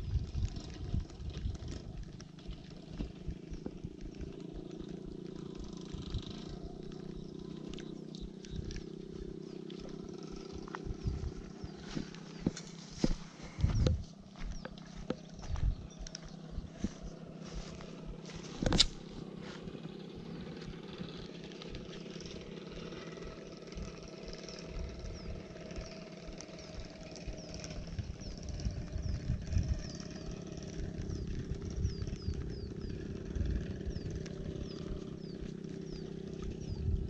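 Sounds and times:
wind gusts on microphone: 0.0 - 4.6, 10.0 - 21.2, 23.7 - 37.0
motor humming: 0.0 - 37.0.

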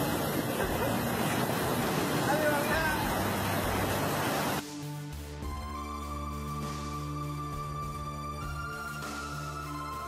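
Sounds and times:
storm wind and water rushing: 0.0 - 4.6
background music with held notes: 4.6 - 10.0.

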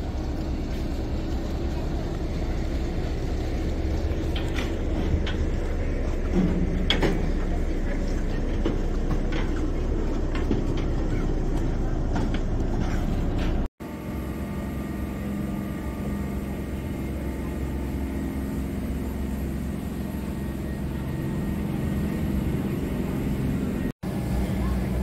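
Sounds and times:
passengers walking across deck: 0.0 - 13.7
boat engine humming: 0.0 - 25.0.

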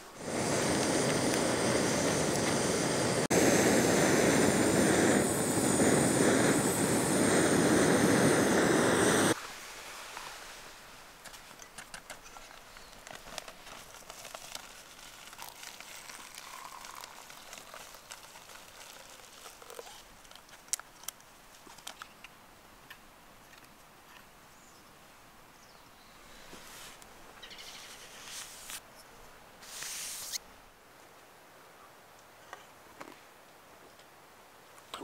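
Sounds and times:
rustle: 9.3 - 35.0
water pouring into cup: 15.3 - 19.8.

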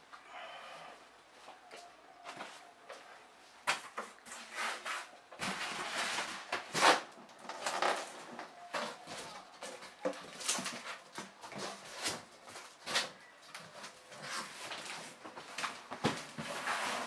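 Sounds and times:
cardboard rustling: 3.7 - 17.0
cardboard scraping: 16.2 - 17.0.

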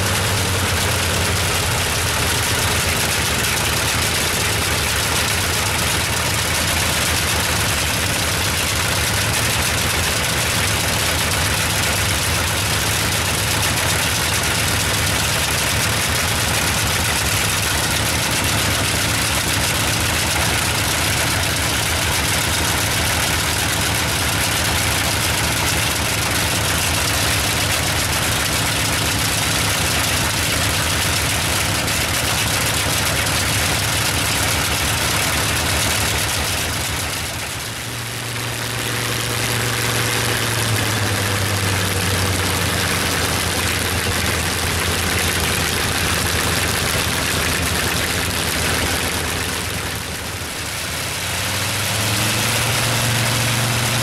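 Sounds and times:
radial aircraft engine running: 0.0 - 54.0.

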